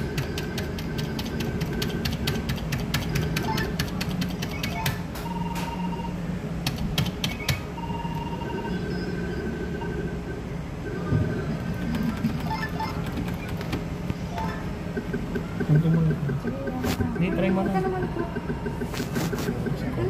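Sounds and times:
machine ticking rapidly: 0.0s - 5.0s, 11.6s - 18.9s
steady low hum: 0.0s - 20.0s.

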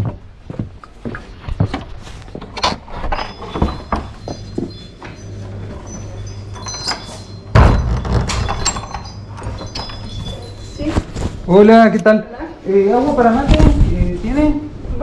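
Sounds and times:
door chime ringing: 3.1s - 10.7s
loud thump with rumble: 7.5s - 8.4s.

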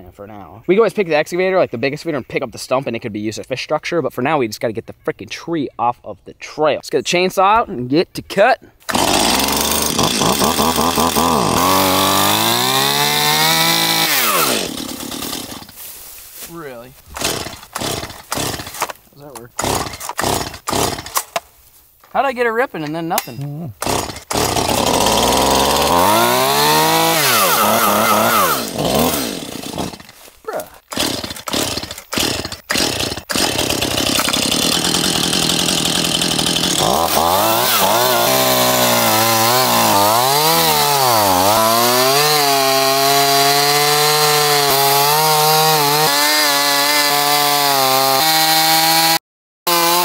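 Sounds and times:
chainsaw cutting wood: 8.8s - 15.9s, 17.0s - 21.5s, 23.8s - 50.0s.

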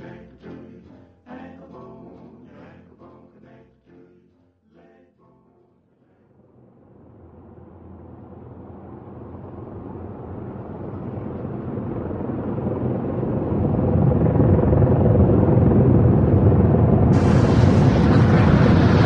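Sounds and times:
low noisy rumble: 6.0s - 19.0s.

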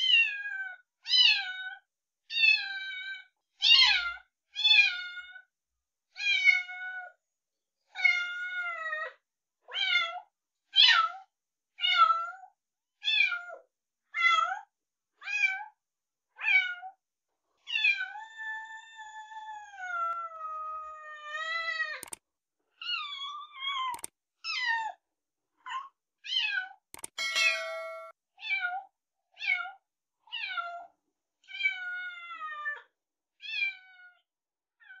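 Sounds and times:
brief sharp clicks: 22.0s - 22.2s, 27.0s - 27.4s.

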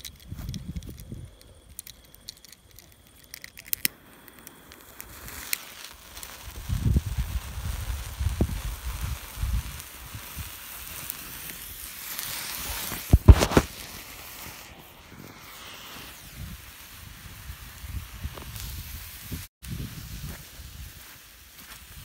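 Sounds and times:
firework hissing: 0.0s - 22.0s
firework sharp pops: 3.8s - 19.5s.

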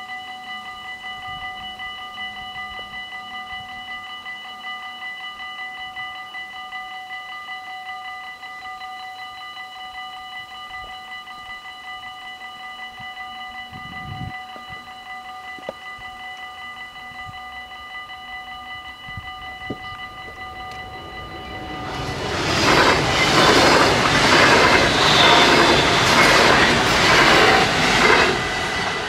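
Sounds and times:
approaching train: 10.4s - 29.0s
level crossing bells ringing: 14.4s - 29.0s.

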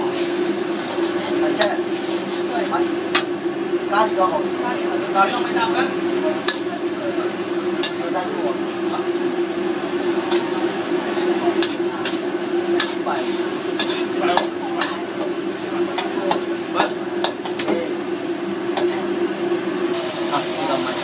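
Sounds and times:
sauce sizzling: 0.0s - 21.0s
metal spatula scraping a wok: 0.2s - 3.3s, 6.4s - 6.7s, 9.8s - 12.2s, 12.8s - 17.7s.

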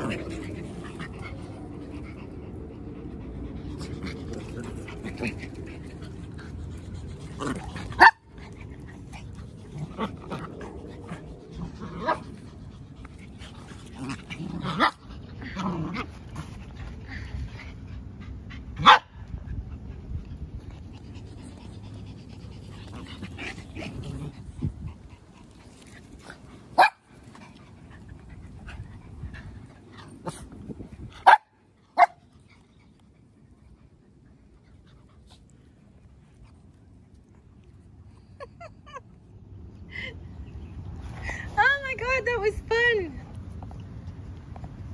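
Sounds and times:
dogs panting: 0.0s - 14.4s, 15.0s - 38.2s
dogs growling: 0.0s - 18.3s, 21.0s - 26.5s.

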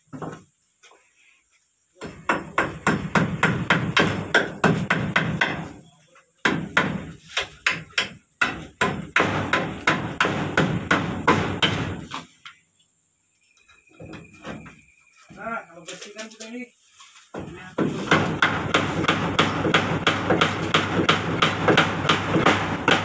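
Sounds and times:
hammer striking: 17.8s - 23.0s.

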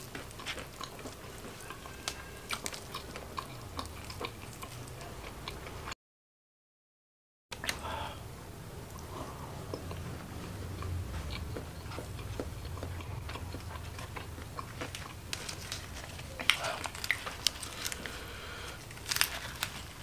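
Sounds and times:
crunchy bites: 0.0s - 4.9s, 11.2s - 20.0s
person chewing: 0.0s - 5.9s, 8.8s - 20.0s.

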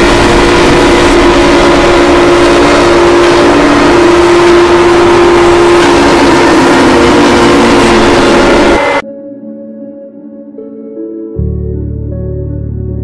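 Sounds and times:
distorted droning alarm tone: 0.0s - 9.0s
loud static-like noise: 0.0s - 9.0s.

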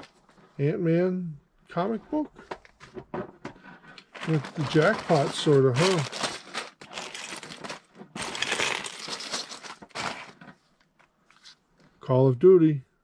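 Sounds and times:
plastic bricks clattering: 4.1s - 10.4s
plastic bag crinkling: 4.1s - 10.5s.

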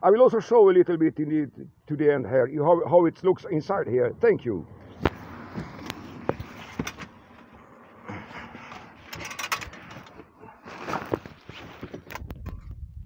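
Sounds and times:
phone handling rustling: 4.9s - 7.6s, 8.7s - 12.5s.

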